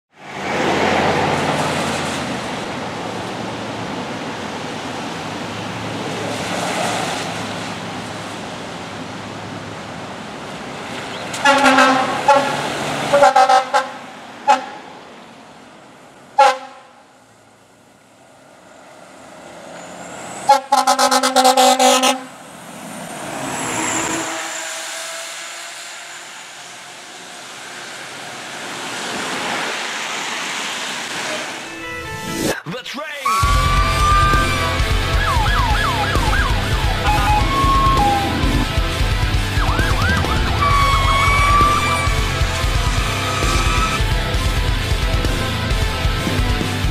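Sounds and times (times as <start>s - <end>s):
air horn blasts: 11.4s - 14.8s, 16.4s - 17.0s, 20.5s - 22.4s, 33.2s - 38.7s, 39.6s - 44.0s
siren: 33.3s - 38.7s, 39.4s - 44.0s
fire truck engine rumbling: 33.3s - 46.9s.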